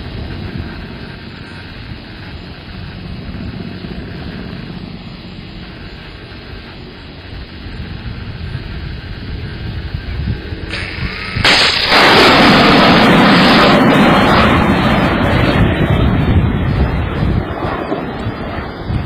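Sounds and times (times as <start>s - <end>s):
distant helicopter rumble: 0.0s - 19.0s
missile launch blast: 10.7s - 18.4s.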